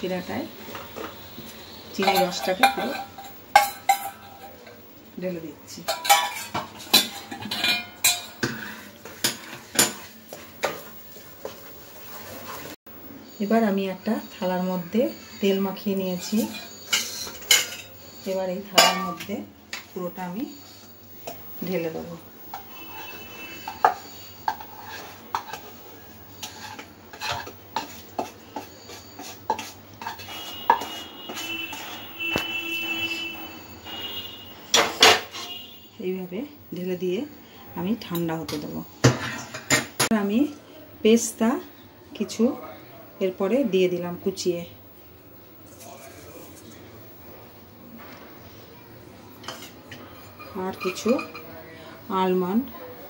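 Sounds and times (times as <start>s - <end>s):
wooden spatula scraping metal pan: 2.0s - 4.5s, 15.1s - 19.3s, 22.5s - 25.7s, 26.3s - 35.7s, 50.4s - 51.4s.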